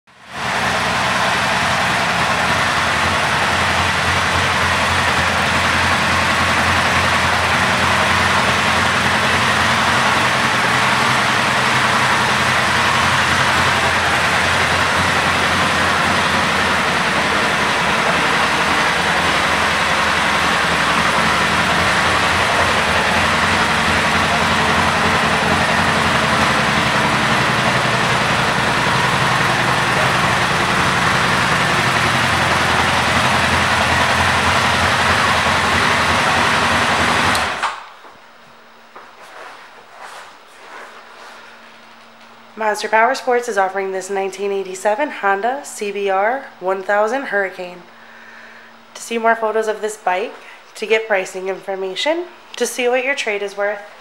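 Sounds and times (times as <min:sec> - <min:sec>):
motorcycle engine idling: 0:00.1 - 0:37.6.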